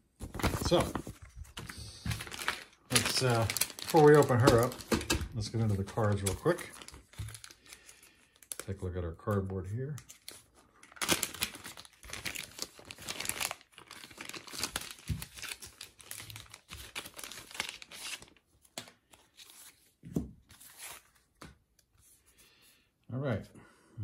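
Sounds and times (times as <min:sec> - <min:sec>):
plastic bag crinkling: 0:00.2 - 0:08.8, 0:10.1 - 0:18.4.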